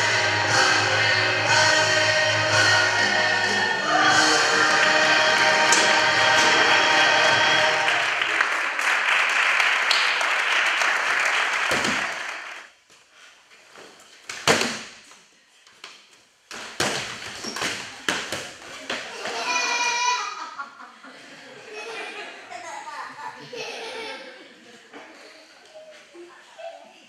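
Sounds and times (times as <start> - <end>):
music: 0.0 - 8.2
audience applause: 4.4 - 12.7.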